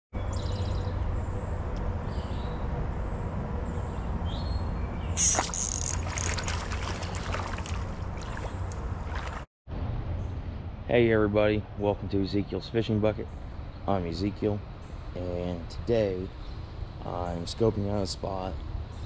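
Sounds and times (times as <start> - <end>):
water splashing: 5.2 - 9.5
water trickling: 5.2 - 9.5.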